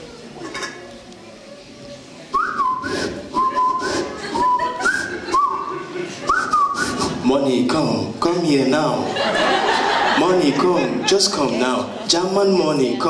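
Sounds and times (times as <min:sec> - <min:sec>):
whistled tune: 0:02.3 - 0:05.7, 0:06.3 - 0:07.0.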